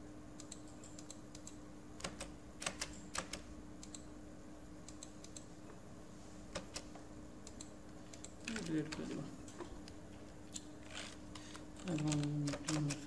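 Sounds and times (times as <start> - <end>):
faint steady hum: 0.0 - 13.0
computer keyboard clicks: 0.4 - 4.1.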